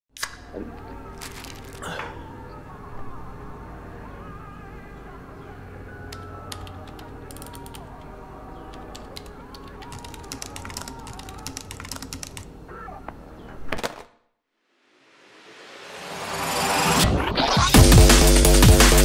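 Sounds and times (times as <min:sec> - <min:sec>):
keyboard typing: 0:06.1 - 0:12.5.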